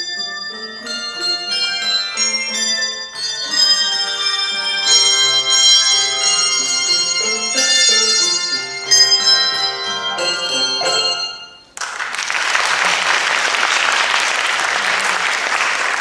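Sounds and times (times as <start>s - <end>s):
handbell chords: 0.0s - 11.7s
audience applause: 11.8s - 16.0s.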